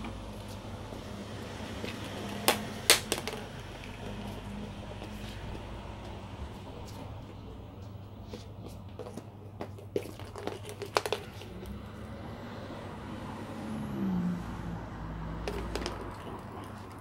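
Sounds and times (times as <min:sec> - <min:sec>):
plastic capsules clattering on tiles: 0:02.4 - 0:04.1, 0:10.0 - 0:11.7, 0:15.4 - 0:17.0.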